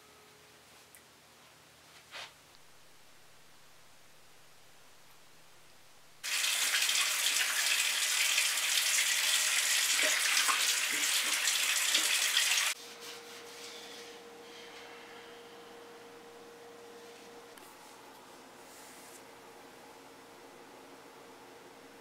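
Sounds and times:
faint steady hum: 0:00.0 - 0:06.5, 0:12.7 - 0:22.0
faucet running into sink: 0:06.2 - 0:12.8.

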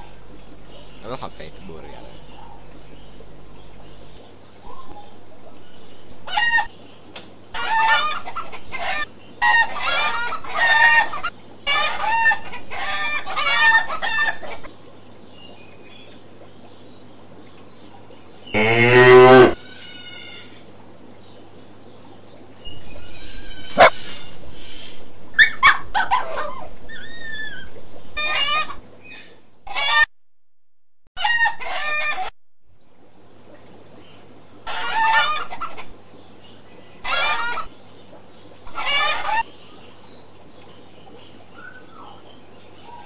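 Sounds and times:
steady low hum: 0:00.0 - 0:29.7, 0:32.2 - 0:34.7
chicken clucking and crowing: 0:06.2 - 0:06.7, 0:07.5 - 0:14.7, 0:28.2 - 0:28.8, 0:29.7 - 0:30.1, 0:31.2 - 0:32.3, 0:34.6 - 0:35.9, 0:37.0 - 0:37.7, 0:38.7 - 0:39.5.

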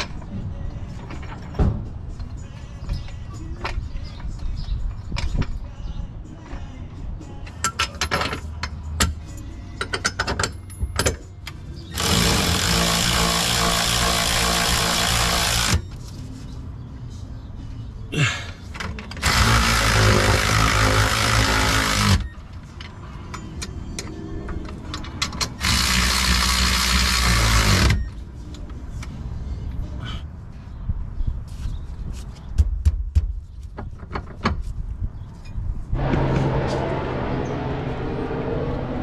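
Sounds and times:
cordless impact wrench running: 0:12.0 - 0:15.8, 0:19.2 - 0:22.2, 0:25.6 - 0:28.0.

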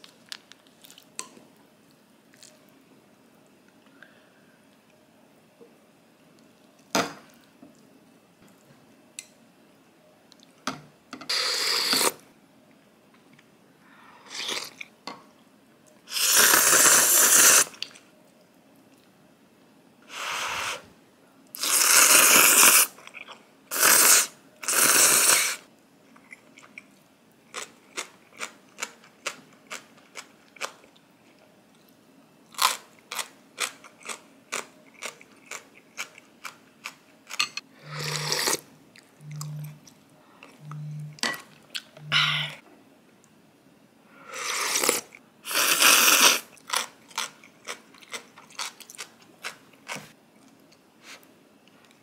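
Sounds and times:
slurping noodles: 0:11.3 - 0:12.2, 0:16.1 - 0:17.9, 0:21.6 - 0:23.0, 0:23.7 - 0:25.6, 0:37.8 - 0:38.6, 0:44.4 - 0:46.5
chewing with crunches: 0:32.6 - 0:37.4, 0:46.5 - 0:51.2.

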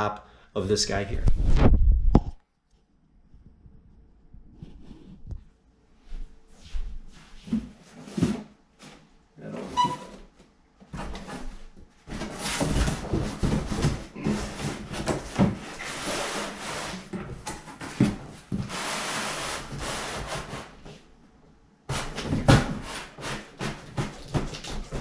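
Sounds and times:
cardboard scraping and rubbing: 0:11.0 - 0:20.9, 0:21.9 - 0:25.0.

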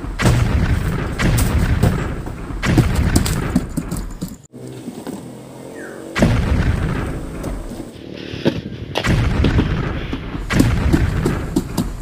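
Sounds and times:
deep booms and thuds: 0:00.0 - 0:04.4, 0:06.2 - 0:07.8, 0:08.5 - 0:12.0.

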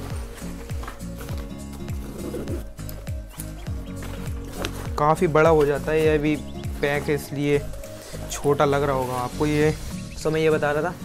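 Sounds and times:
music with heavy bass drum beat: 0:00.0 - 0:11.0.

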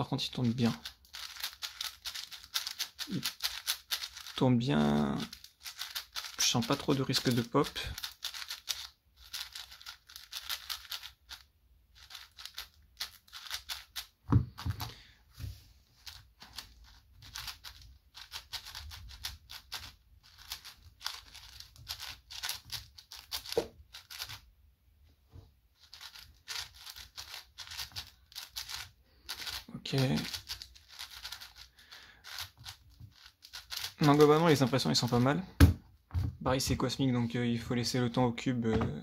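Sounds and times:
puzzle cube plastic clicking: 0:00.6 - 0:04.4, 0:05.2 - 0:11.4, 0:12.0 - 0:15.0, 0:16.0 - 0:24.4, 0:25.8 - 0:35.2
thump: 0:14.3 - 0:14.8, 0:35.6 - 0:36.4.

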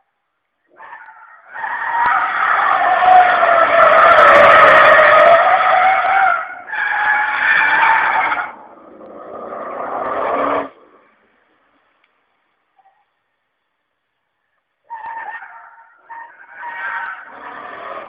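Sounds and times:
car tyres squealing in a skid: 0:00.7 - 0:10.8, 0:14.9 - 0:18.0.

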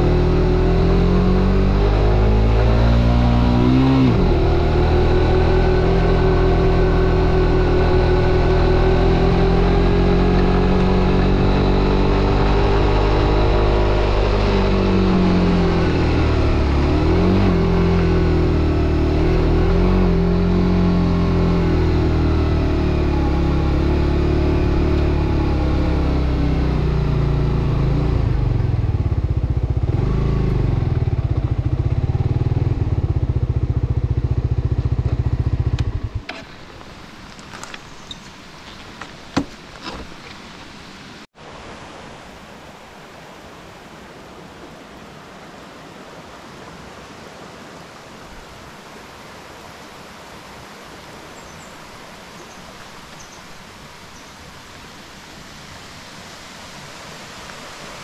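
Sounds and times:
motorcycle engine running: 0:03.2 - 0:38.2
faint engine clicks: 0:35.7 - 0:40.4.

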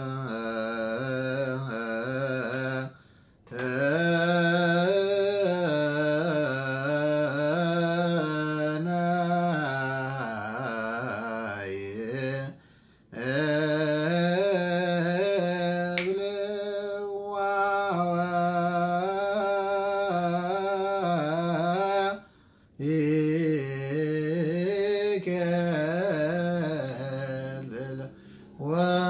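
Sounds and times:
man chanting a hymn: 0:00.0 - 0:29.0.

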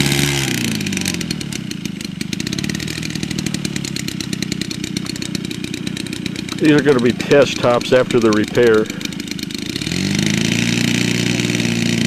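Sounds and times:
model plane engine running: 0:00.0 - 0:12.0.

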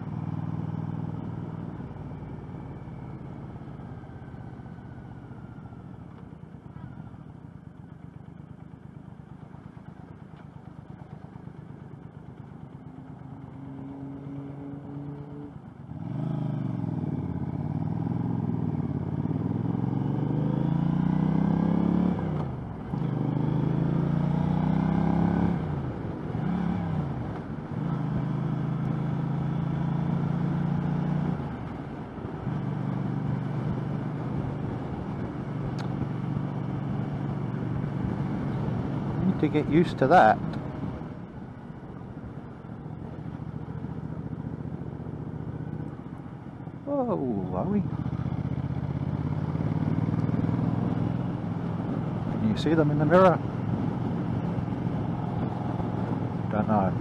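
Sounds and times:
motorcycle engine revving: 0:12.6 - 0:41.2, 0:42.5 - 0:57.0.

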